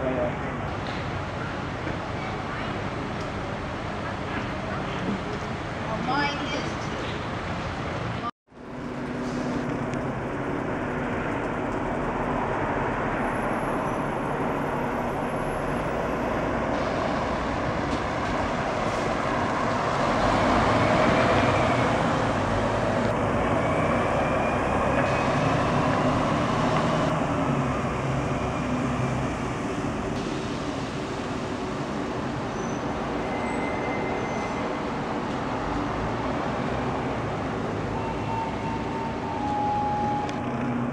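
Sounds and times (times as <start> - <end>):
tyres hissing on wet road: 15.0 - 22.8, 24.0 - 35.2.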